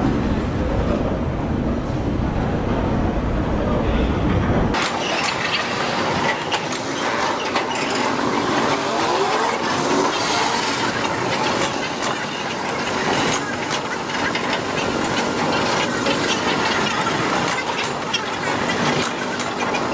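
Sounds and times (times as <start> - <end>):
sped-up train wheels clattering: 4.7 - 19.9.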